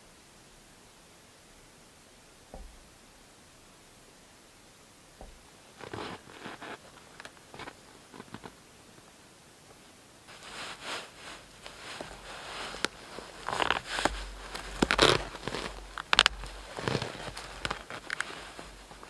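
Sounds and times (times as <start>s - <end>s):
clothing and gear rustling: 5.2s - 8.6s, 10.3s - 19.0s
snow crunching: 5.2s - 8.6s, 10.3s - 19.0s
cord being tied: 10.3s - 19.0s.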